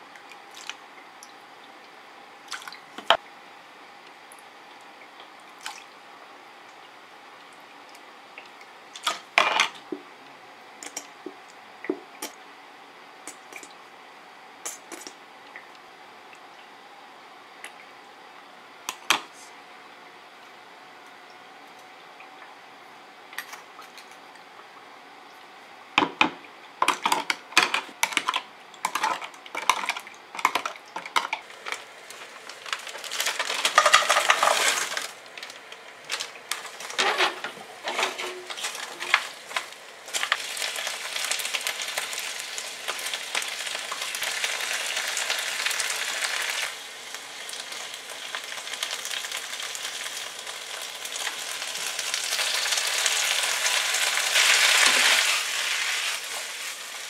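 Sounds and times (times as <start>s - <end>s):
vegetables sizzling in a frying pan: 31.5s - 35.2s, 36.1s - 57.0s.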